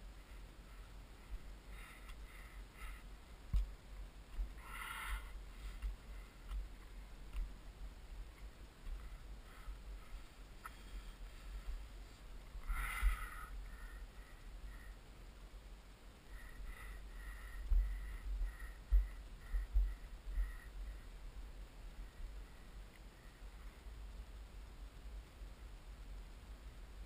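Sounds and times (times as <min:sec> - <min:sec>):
sniffing breaths: 0:00.2 - 0:03.2, 0:04.5 - 0:06.6, 0:09.0 - 0:15.0, 0:16.3 - 0:21.1.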